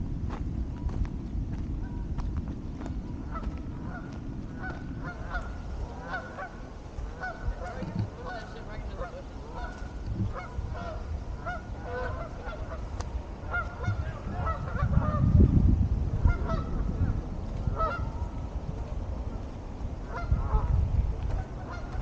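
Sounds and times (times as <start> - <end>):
low rumble: 0.0 - 22.0
geese honking: 3.2 - 15.3, 16.2 - 18.4, 20.0 - 22.0.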